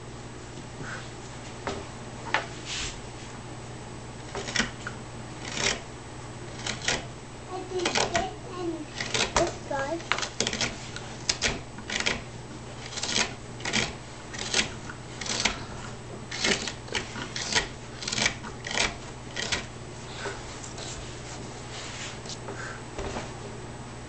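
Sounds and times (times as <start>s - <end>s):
carving knife cutting wood: 5.4s - 5.8s, 10.2s - 15.7s, 16.3s - 19.7s.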